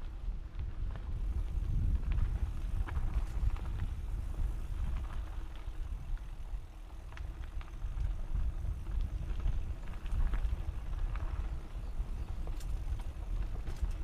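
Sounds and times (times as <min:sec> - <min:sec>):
wind and tyre rumble: 0:00.0 - 0:14.0
bike clicks and rattles: 0:00.3 - 0:14.0.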